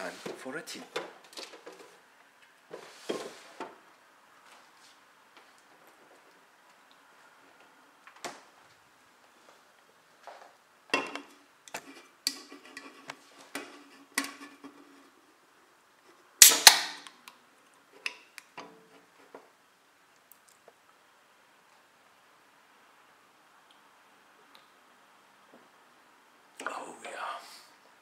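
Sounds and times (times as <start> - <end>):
can ring-pull opening with fizz: 16.4 - 17.2.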